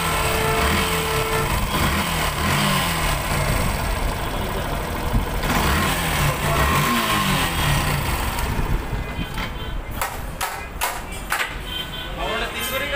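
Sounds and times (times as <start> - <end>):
motorcycle engine running: 0.0 - 9.0.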